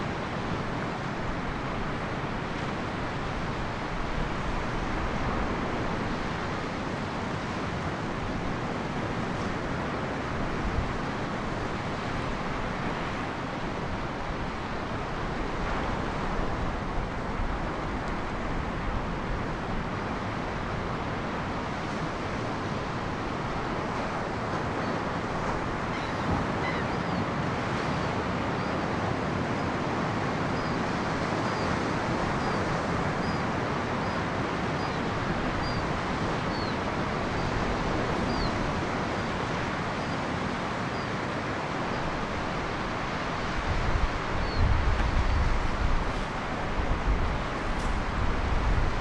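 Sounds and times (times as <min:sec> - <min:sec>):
ocean surf breaking: 0:00.0 - 0:49.0
wind buffeting microphone: 0:42.0 - 0:49.0.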